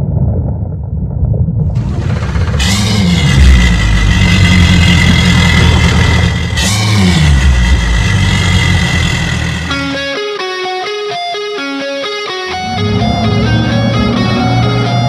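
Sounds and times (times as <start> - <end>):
deep rumble: 0.0 - 10.0
outboard engines revving: 1.8 - 10.1, 12.5 - 15.0
steady high whine: 1.8 - 15.0.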